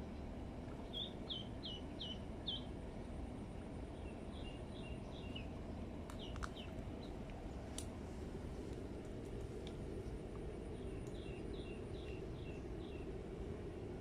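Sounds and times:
low background rumble: 0:00.0 - 0:14.0
duckling peeping: 0:00.8 - 0:02.7.

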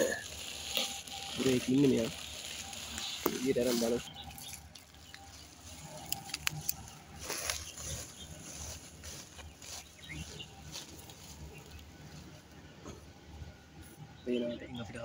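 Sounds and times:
plastic sack rustling: 0:00.0 - 0:11.6.

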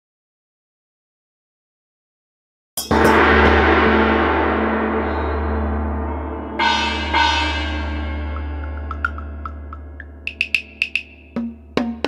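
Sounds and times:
light metallic strikes: 0:02.8 - 0:12.0
gong ringing: 0:02.9 - 0:12.0
deep low hum: 0:03.4 - 0:12.0.

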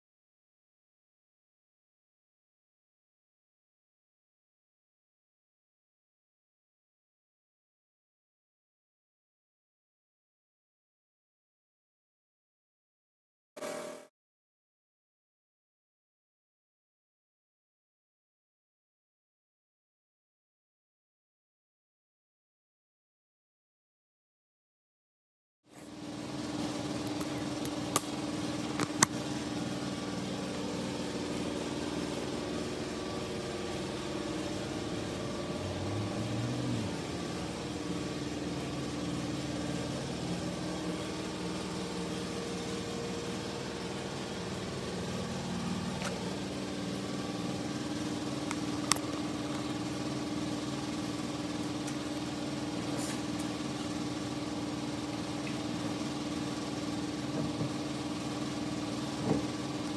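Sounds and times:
workshop machine humming: 0:25.7 - 0:59.9.

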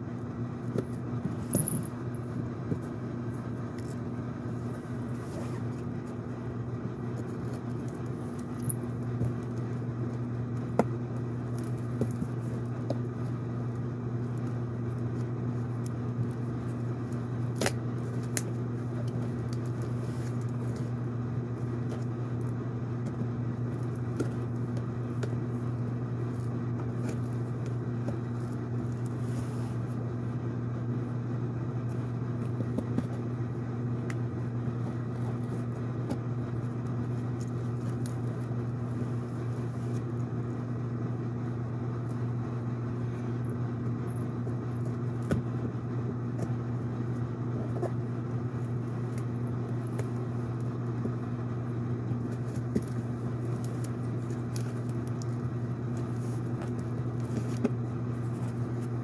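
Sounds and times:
room appliance humming: 0:00.0 - 0:59.0
scissors and hands on cardboard box: 0:23.0 - 0:30.0, 0:52.1 - 0:59.0.

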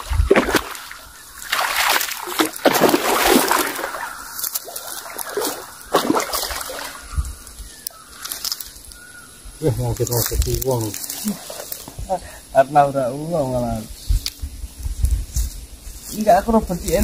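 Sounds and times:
fish thrashing and splashing in water: 0:00.0 - 0:07.1.

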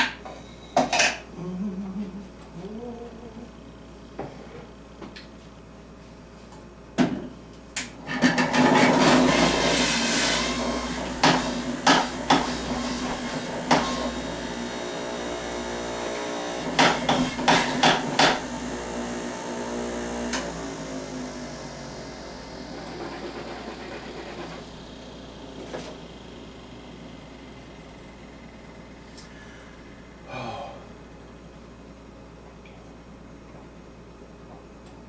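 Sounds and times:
juicer grinding vegetables: 0:08.0 - 0:30.1
juicer motor humming: 0:08.0 - 0:31.8.

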